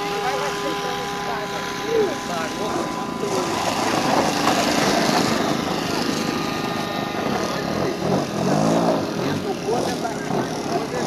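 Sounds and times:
model airplane engine running: 0.0s - 11.0s.

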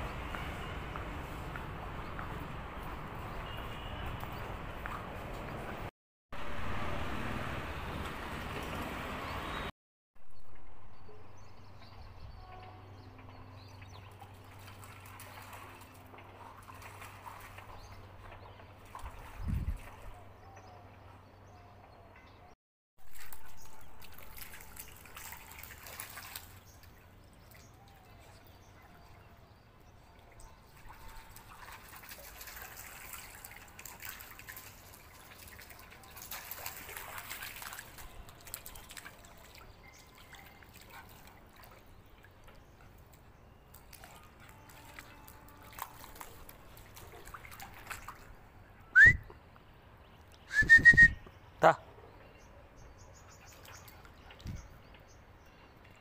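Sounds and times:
paws splashing in shallow water: 1.3s - 5.9s, 13.8s - 20.3s, 23.0s - 29.4s, 30.1s - 48.4s, 53.2s - 54.8s
short high whistles: 49.0s - 49.3s, 50.5s - 51.2s.

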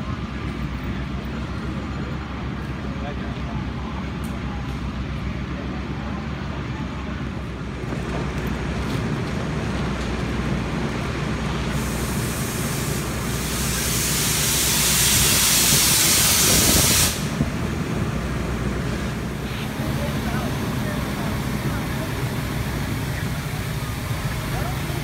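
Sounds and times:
fire engine humming: 0.0s - 25.0s
loud hiss: 11.6s - 18.0s.

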